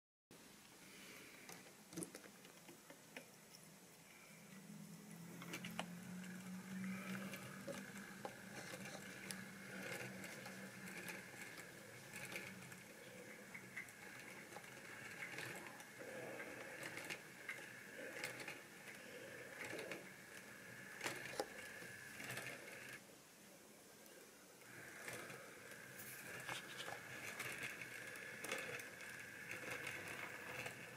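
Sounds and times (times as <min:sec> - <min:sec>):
electric motor high whine: 0:04.6 - 0:23.0
wheels clicking over track: 0:05.2 - 0:23.0, 0:24.6 - 0:30.9.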